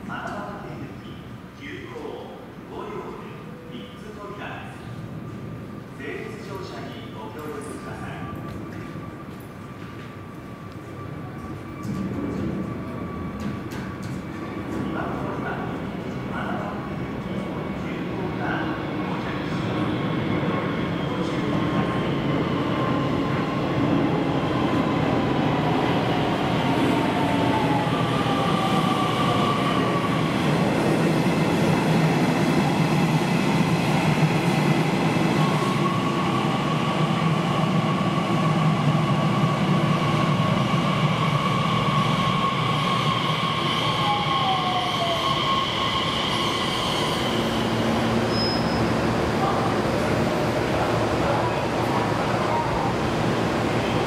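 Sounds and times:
electric train rumbling: 4.8 - 54.0
train brakes squealing: 41.8 - 49.2.

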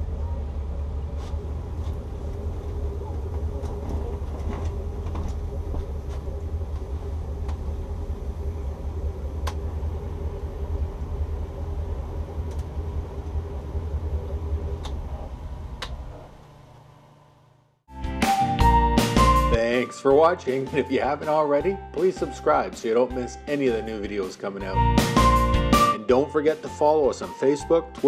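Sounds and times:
boat engines idling: 0.0 - 16.9.

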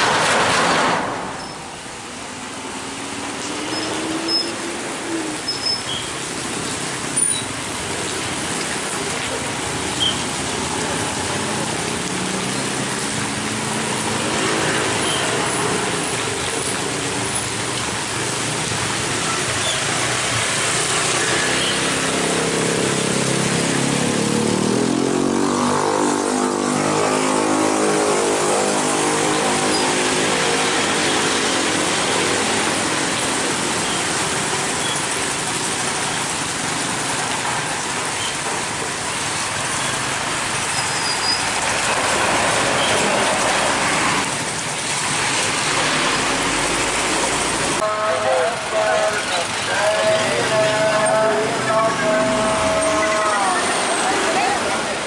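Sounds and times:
car engines: 0.0 - 55.0
tyres hissing on wet road: 0.0 - 55.0
truck diesel engine: 45.2 - 55.0.

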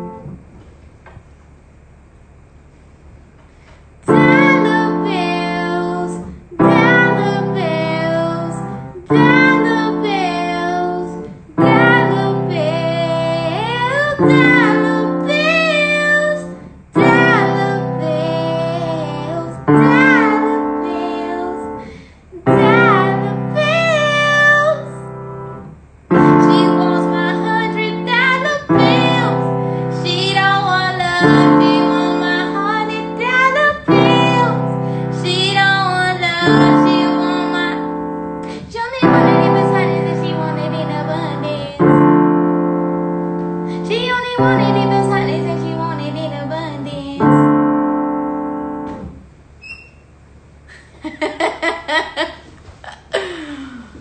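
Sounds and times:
piano chords: 0.0 - 0.5, 4.0 - 52.5
woman singing: 4.0 - 25.0, 26.2 - 42.4, 43.7 - 47.8.

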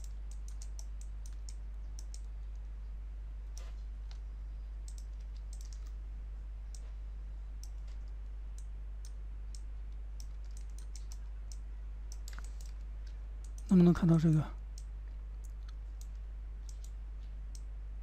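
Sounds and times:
computer mouse clicks: 0.0 - 2.6, 4.8 - 6.0, 7.6 - 17.7
low electrical hum: 0.0 - 18.0.

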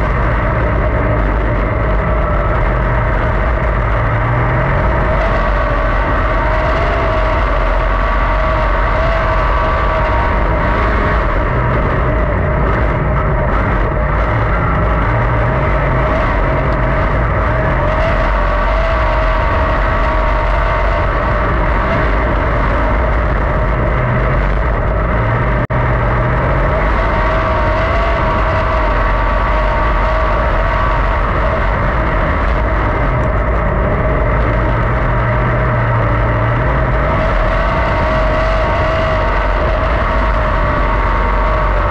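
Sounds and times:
race car engine drone: 0.0 - 41.9.

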